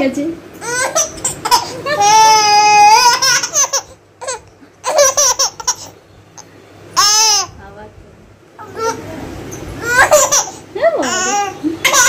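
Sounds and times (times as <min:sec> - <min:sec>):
baby squealing: 0:00.6 - 0:06.0, 0:07.0 - 0:07.6, 0:09.8 - 0:12.0
baby laughing: 0:00.6 - 0:07.6, 0:08.6 - 0:09.1, 0:09.8 - 0:12.0.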